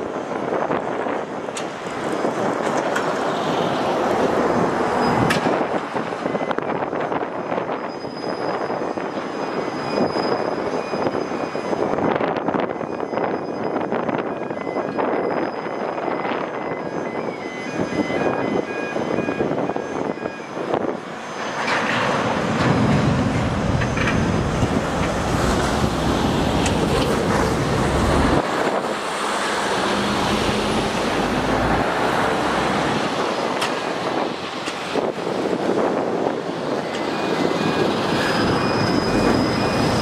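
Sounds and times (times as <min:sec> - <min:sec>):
heavy lorry traffic passing: 0:00.0 - 0:40.0.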